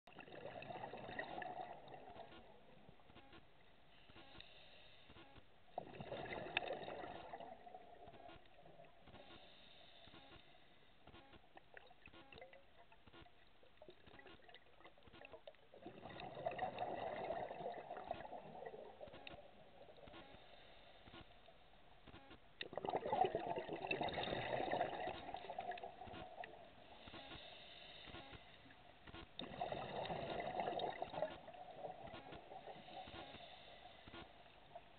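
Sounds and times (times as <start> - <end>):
bubbling exhaled air: 5.8 - 8.1, 15.8 - 19.5, 22.6 - 26.4, 29.4 - 33.7.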